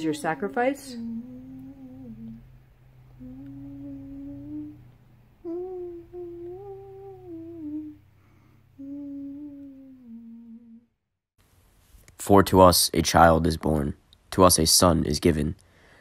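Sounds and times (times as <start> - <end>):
faint low hum: 0.0 - 10.9
person humming a melody: 0.4 - 11.0.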